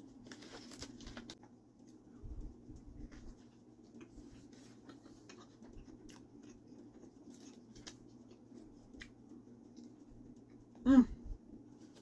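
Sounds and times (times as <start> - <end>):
low steady hum: 0.0 - 12.0
chewing sandwich: 2.7 - 10.8.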